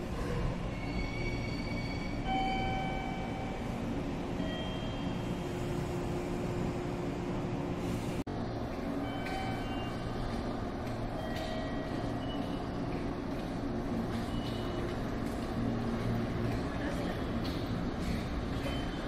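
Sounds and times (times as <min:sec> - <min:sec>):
electric train humming: 0:00.0 - 0:19.0
faint high-pitched squeals: 0:00.6 - 0:03.6.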